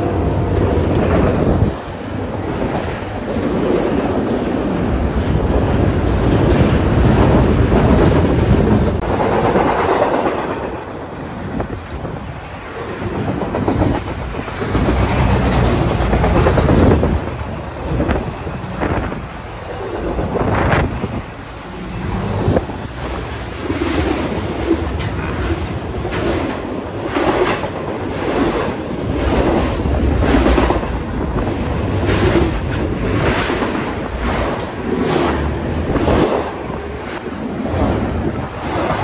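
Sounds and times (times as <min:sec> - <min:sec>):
train cars rolling on rails: 0:00.0 - 0:39.0.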